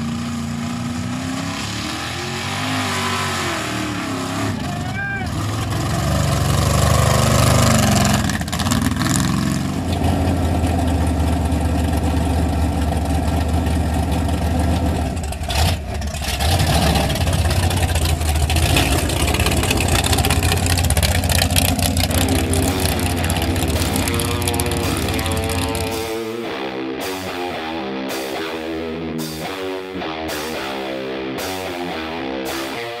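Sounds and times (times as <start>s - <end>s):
tires driving through mud: 0.0s - 26.2s
truck engine running: 0.0s - 32.9s.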